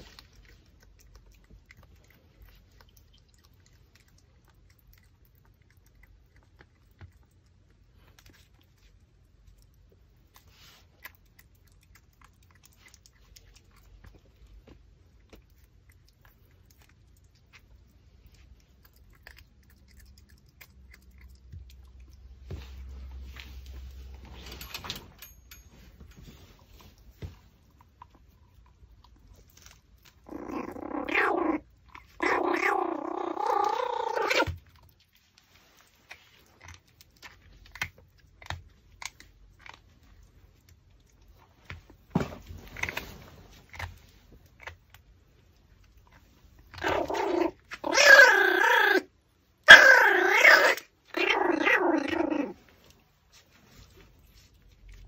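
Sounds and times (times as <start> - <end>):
faint chewing clicks: 0.0 - 22.5, 27.1 - 41.9
puppy growling: 30.0 - 34.6, 46.6 - 52.7.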